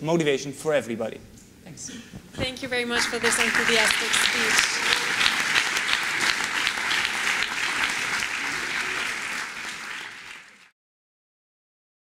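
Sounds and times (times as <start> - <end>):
audience applauding: 2.8 - 10.8.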